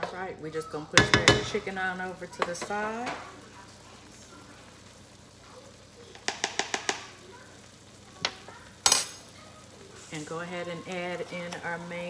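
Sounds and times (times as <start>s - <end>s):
oil sizzling in a wok: 0.0s - 12.0s
kitchen clicks and clinks: 8.2s - 9.3s.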